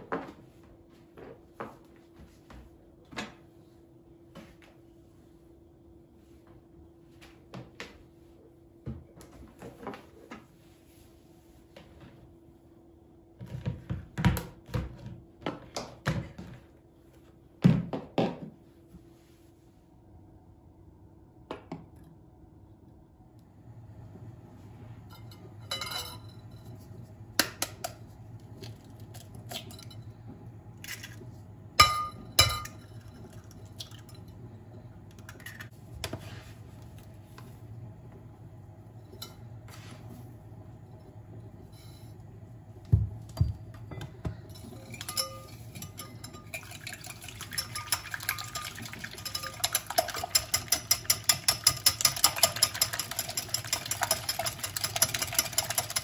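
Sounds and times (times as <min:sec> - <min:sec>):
spoon clinking against glass bowl: 0:25.2 - 0:26.4, 0:31.8 - 0:33.2, 0:44.6 - 0:56.0
whisk clinking in glass bowl: 0:44.6 - 0:56.0.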